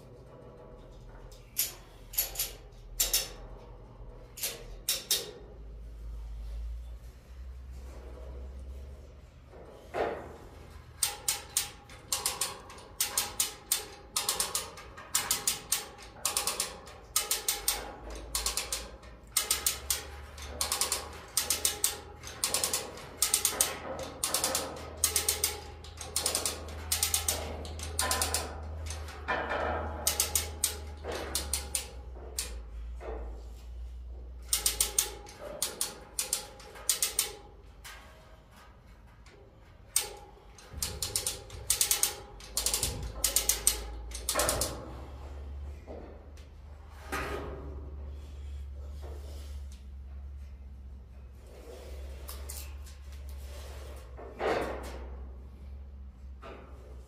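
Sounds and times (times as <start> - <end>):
hoist ratchet clicking: 1.4 - 3.4, 4.4 - 5.3, 10.9 - 32.6, 34.4 - 37.6, 39.9 - 45.1.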